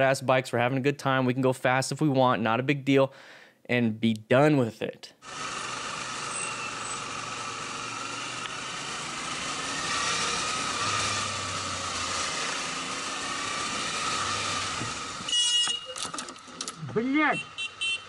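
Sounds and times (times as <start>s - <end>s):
motorcycle engine running: 5.2s - 16.9s
wind and road noise: 5.2s - 18.0s.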